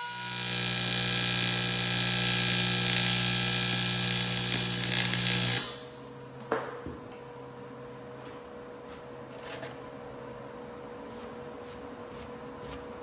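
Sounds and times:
welding arc buzzing: 0.0 - 6.0.

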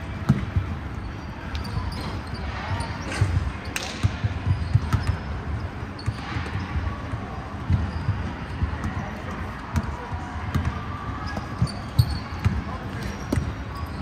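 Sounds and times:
basketball bouncing on wooden floor: 3.8 - 5.3.

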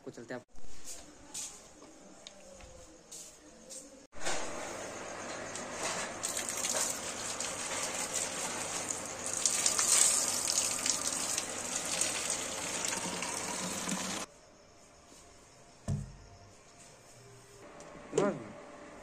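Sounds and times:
water gushing into plastic bottle: 6.2 - 14.3.

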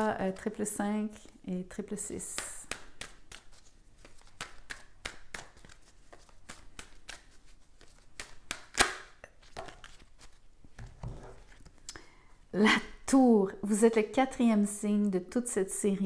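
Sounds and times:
cards being shuffled: 2.4 - 11.9.

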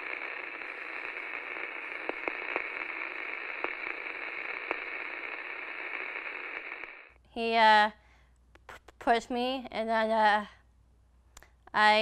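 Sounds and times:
sharp crackles: 0.0 - 7.2
television static hiss: 0.0 - 7.2.

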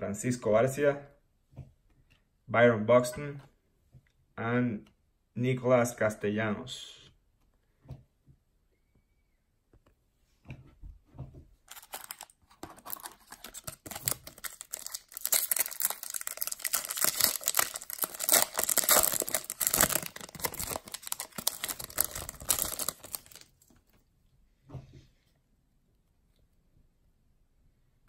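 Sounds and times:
foil wrapper torn and crinkled: 11.7 - 23.5.

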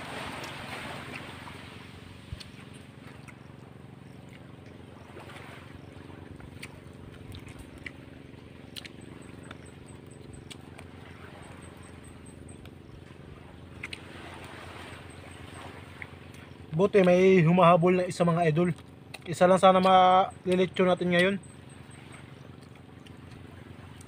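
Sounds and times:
small boat engine droning: 0.0 - 24.0.

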